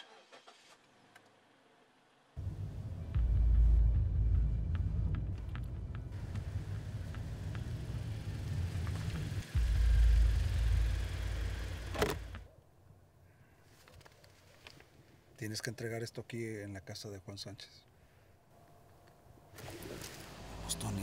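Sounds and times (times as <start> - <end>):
car engine and road rumble: 0.0 - 12.6, 19.6 - 21.0.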